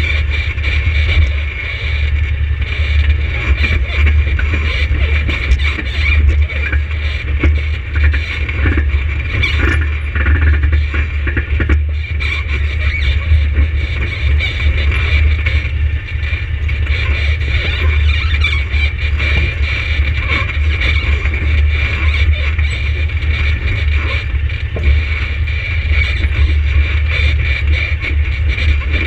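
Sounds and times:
engine droning: 0.0 - 29.0.

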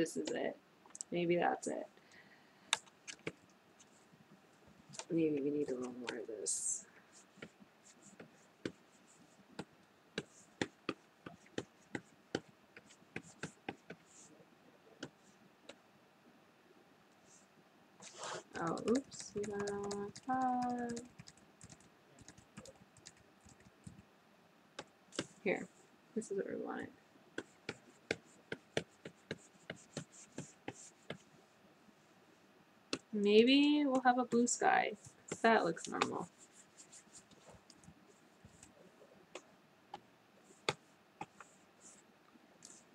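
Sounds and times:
stylus tapping on tablet: 10.2 - 14.0, 18.6 - 24.0, 27.4 - 31.2
stylus clicking on tablet: 18.5 - 24.0.

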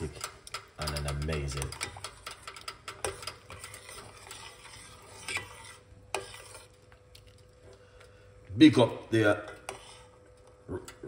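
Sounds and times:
metal spoon scraping a saucepan: 0.0 - 7.4, 9.2 - 11.0.

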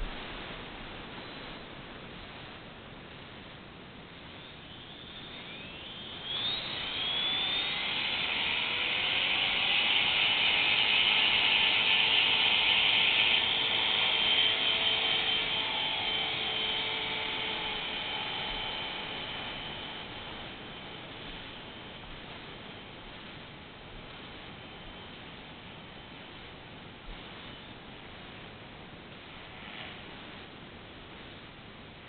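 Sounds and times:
model helicopter motor whining: 4.7 - 22.9.

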